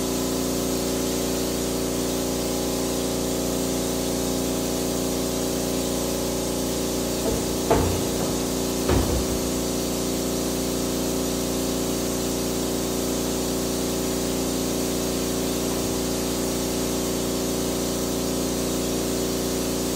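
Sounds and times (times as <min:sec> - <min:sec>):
short knock: 0:07.2 - 0:09.8.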